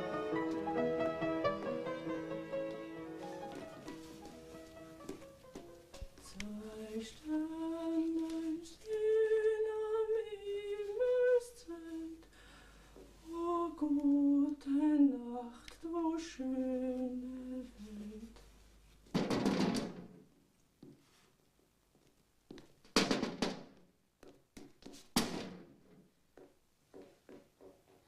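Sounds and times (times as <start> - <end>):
woman singing softly: 6.2 - 12.3, 13.2 - 18.4.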